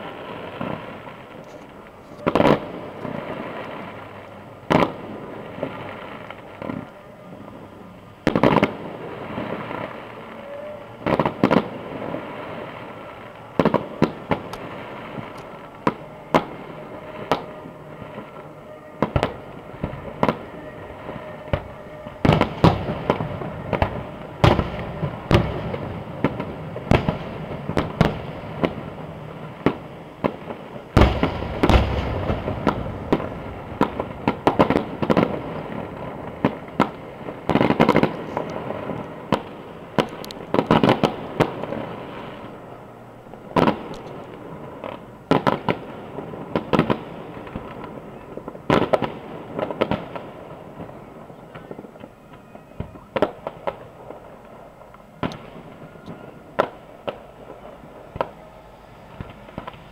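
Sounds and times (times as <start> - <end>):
fireworks bangs and crackles: 0.0 - 59.9
deep firework boom: 19.0 - 39.5.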